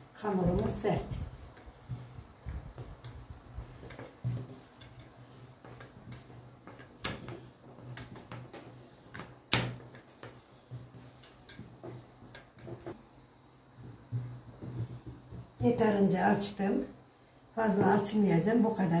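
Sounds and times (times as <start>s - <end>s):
rolling pin rolling dough: 0.3s - 16.1s
rolling pin knocking on glass table: 13.8s - 15.6s.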